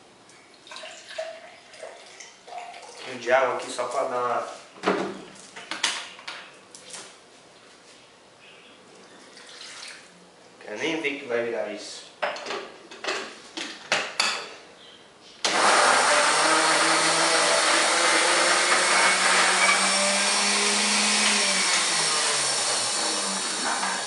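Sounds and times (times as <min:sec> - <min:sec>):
blender motor running: 0:15.5 - 0:24.0.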